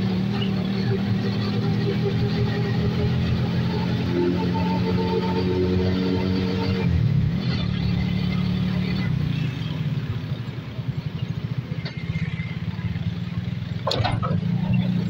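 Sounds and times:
vehicle engine chugging: 0.0 - 4.8, 6.9 - 15.0.

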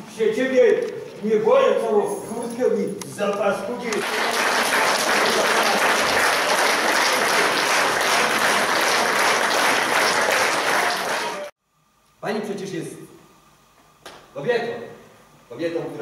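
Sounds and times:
audience applauding: 3.9 - 11.6.

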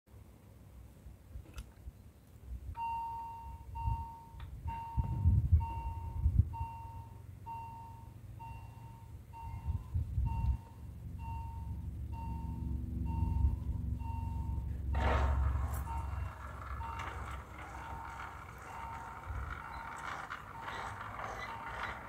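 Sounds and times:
level crossing warning bell: 2.8 - 22.0
steady low hum: 5.0 - 22.0
low rumbles: 9.5 - 22.0.

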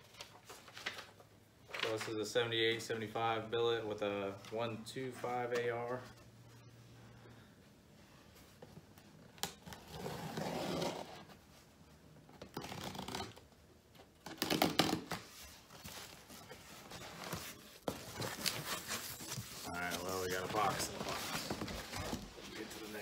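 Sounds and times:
cardboard scraping: 9.7 - 11.4, 14.4 - 23.0
tape tearing: 12.4 - 13.4, 14.2 - 22.2.

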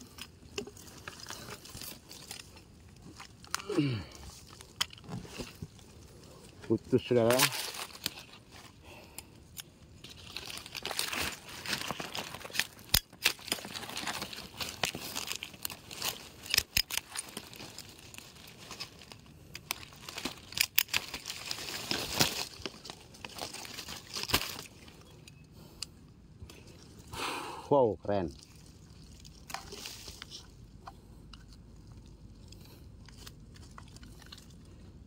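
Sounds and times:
twigs snapping: 0.0 - 6.6, 7.2 - 27.1, 28.3 - 34.8
dry leaves rustling: 0.6 - 8.8, 10.0 - 25.0, 28.3 - 30.7.

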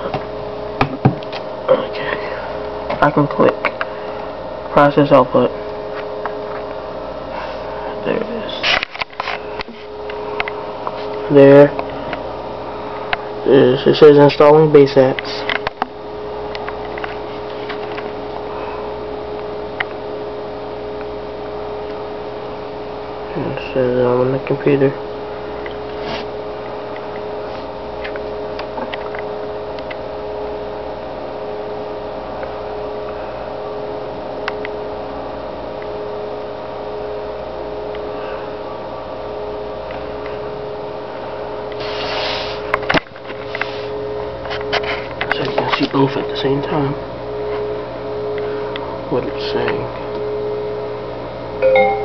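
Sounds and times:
machine hum: 0.0 - 14.0
electrical hum: 0.0 - 52.0.

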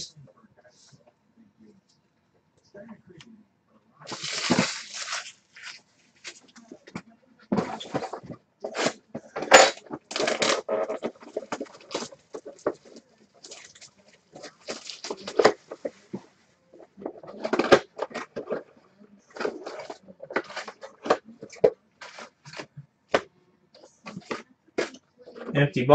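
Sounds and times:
wrappers crinkling and rustling: 4.1 - 6.8, 10.0 - 16.2, 19.4 - 22.7.

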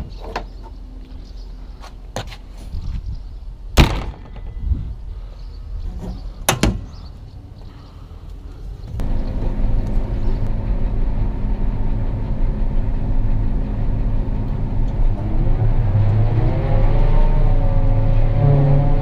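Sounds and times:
engine drone in cab: 8.8 - 19.0
rising whine: 8.9 - 19.0.

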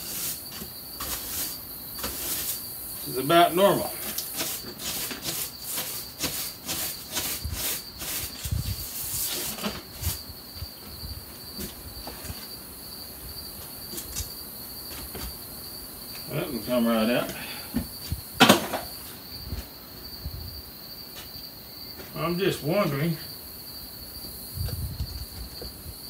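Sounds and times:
broom scraping wood: 0.0 - 15.5
high insect drone: 0.0 - 26.0.

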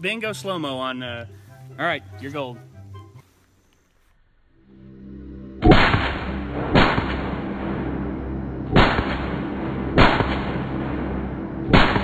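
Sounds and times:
rifle single shots: 11.7 - 12.0.

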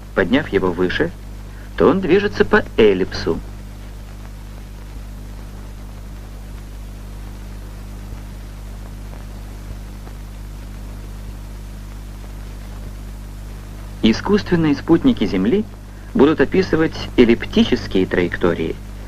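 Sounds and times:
film soundtrack hiss: 0.0 - 19.0
low electrical hum: 0.0 - 19.0.

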